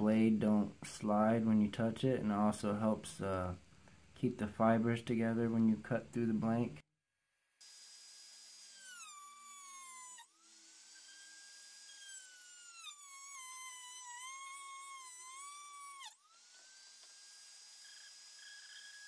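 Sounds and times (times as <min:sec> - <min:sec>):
rotary tool cutting whine: 0:07.6 - 0:19.0.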